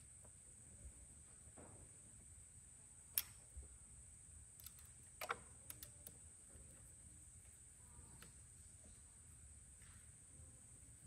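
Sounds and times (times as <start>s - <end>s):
small plastic clicks and taps: 4.6s - 6.2s.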